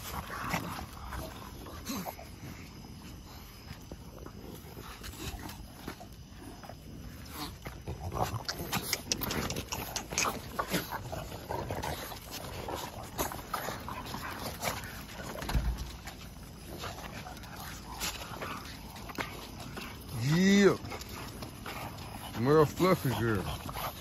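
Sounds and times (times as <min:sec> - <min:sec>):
dogs making short sounds: 0:07.2 - 0:11.4.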